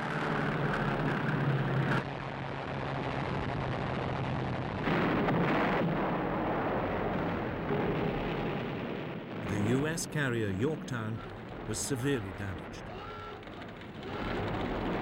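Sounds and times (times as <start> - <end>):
warplane engine drone: 0.0 - 3.0
rumbling noise: 0.3 - 15.0.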